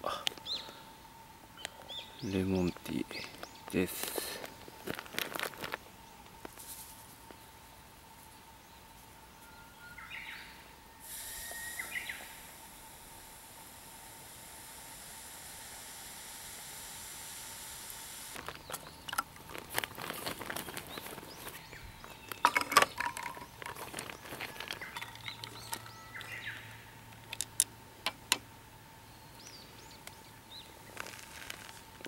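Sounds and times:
faint birds chirping: 0.0s - 32.0s
clicks and knocks of bottle and glass: 22.4s - 25.9s
sparkling water pouring into glass: 24.7s - 26.3s.

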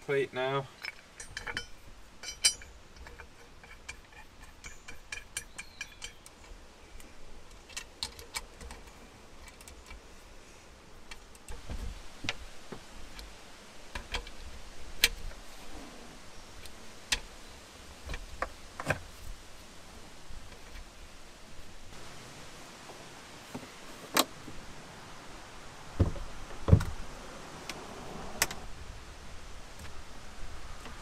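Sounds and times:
metal parts clicking and clinking: 0.7s - 6.6s.

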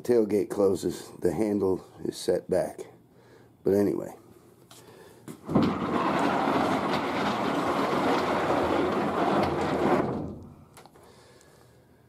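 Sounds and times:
slider rolling on ball rollers: 5.4s - 10.9s.

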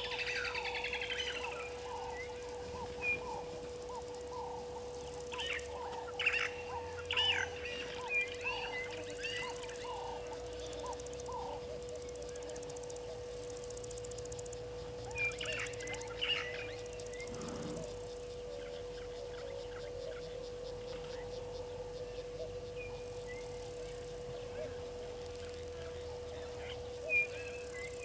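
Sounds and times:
steady hum: 0.0s - 28.0s
higher bird calls: 15.1s - 18.3s.

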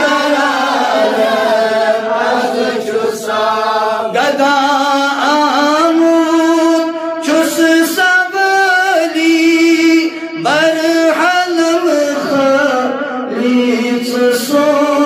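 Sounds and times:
man singing unaccompanied: 4.1s - 15.0s.

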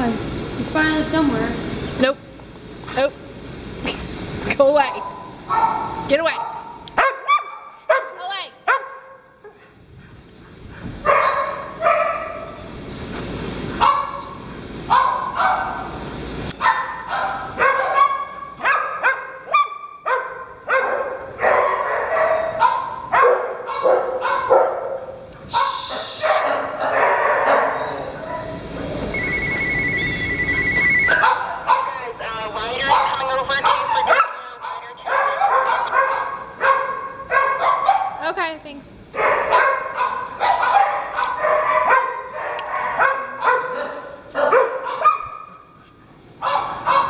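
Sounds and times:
dogs barking: 5.0s - 12.7s, 13.8s - 16.0s, 16.6s - 28.8s, 31.0s - 38.2s, 39.1s - 45.7s, 46.3s - 47.0s.

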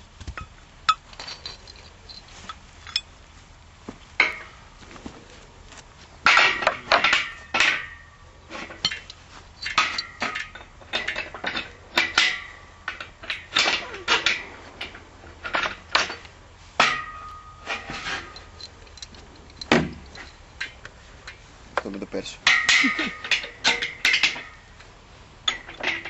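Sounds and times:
hammer striking metal frame: 4.2s - 4.6s, 6.2s - 8.1s, 8.8s - 14.5s, 16.8s - 18.4s, 21.8s - 24.7s.

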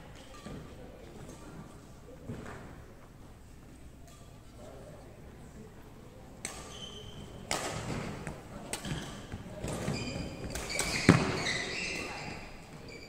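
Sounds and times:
racket hitting shuttlecock: 6.4s - 12.1s
shoe squeaks on court floor: 6.6s - 7.4s, 8.8s - 13.0s.

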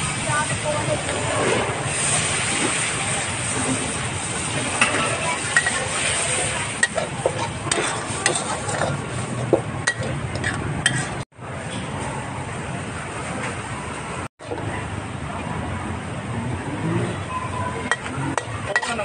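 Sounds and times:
food sizzling in pan: 0.0s - 11.2s
metal utensil scraping pan: 0.4s - 11.2s, 17.8s - 19.0s.

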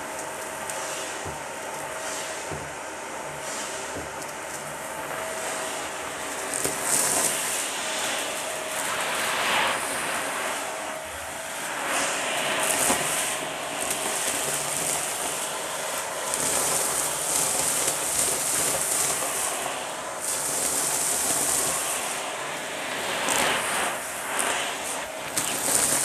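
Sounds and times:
vacuum cleaner running: 0.0s - 26.0s
debris crunching through hose: 12.4s - 21.9s, 23.3s - 26.0s.

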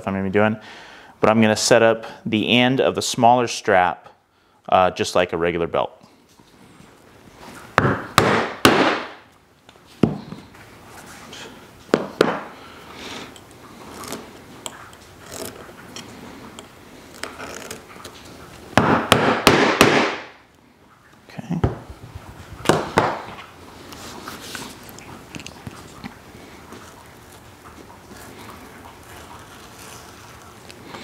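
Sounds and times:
handling scrapes: 13.0s - 18.6s, 23.4s - 31.0s.

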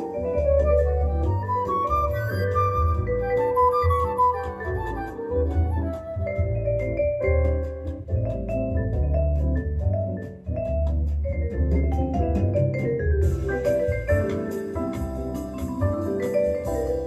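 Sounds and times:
vibraphone melody: 0.0s - 17.0s
steady bass line: 4.7s - 17.0s.

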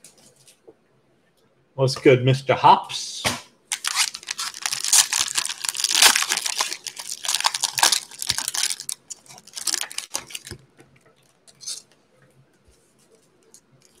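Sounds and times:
plastic wrapper tearing and crinkling: 3.7s - 10.6s.

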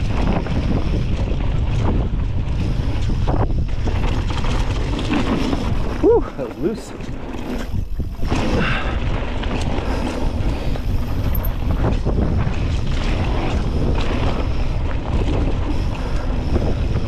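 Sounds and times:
bike tyres rolling on loose dirt: 0.0s - 17.0s
wind buffeting microphone: 0.0s - 17.0s.

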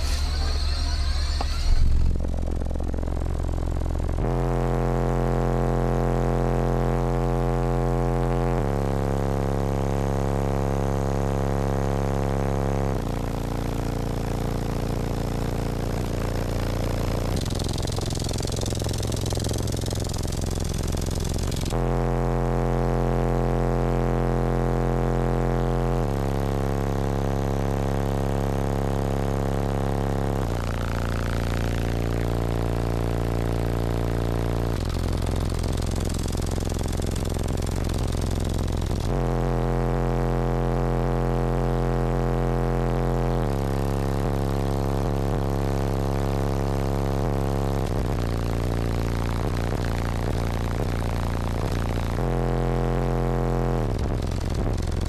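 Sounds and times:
deep bass notes from subwoofers: 0.0s - 55.0s.

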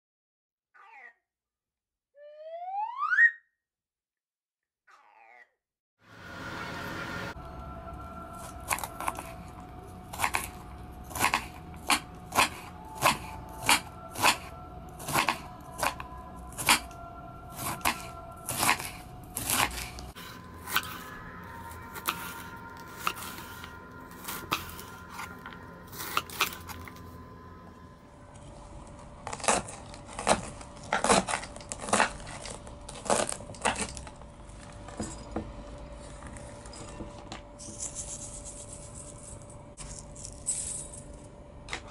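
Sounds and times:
knife cutting cabbage on board: 10.1s - 21.1s, 21.9s - 27.0s, 29.2s - 34.0s.

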